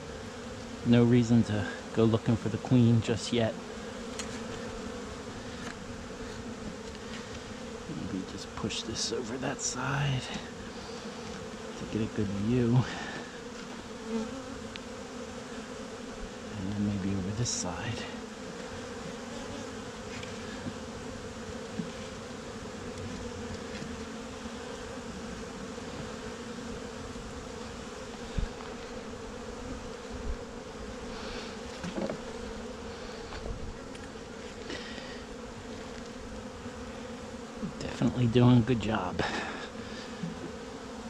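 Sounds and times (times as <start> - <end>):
bees buzzing: 0.0 - 41.0.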